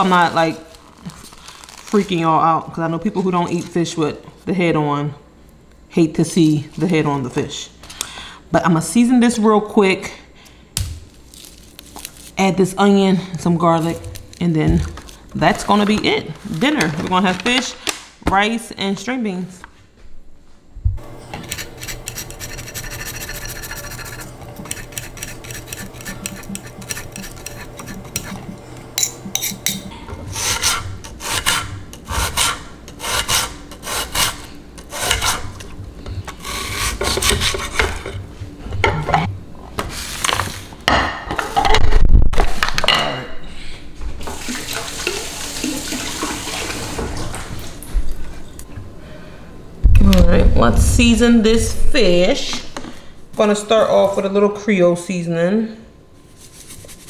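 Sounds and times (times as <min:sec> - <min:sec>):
steady rubbing: 0:21.0 - 0:35.6
knife sawing on cutting board: 0:21.2 - 0:28.6, 0:30.3 - 0:35.6, 0:36.4 - 0:37.9.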